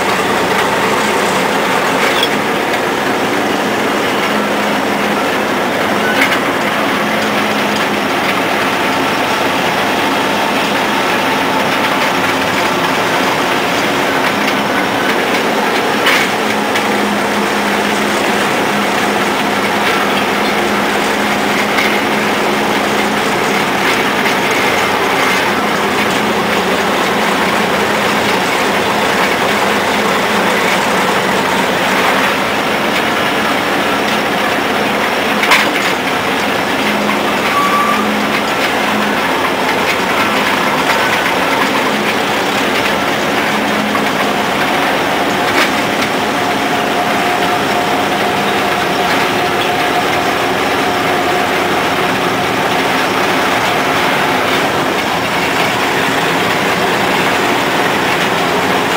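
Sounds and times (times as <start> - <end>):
diesel engine running: 0.0 - 58.9
gear train clattering: 0.0 - 58.9.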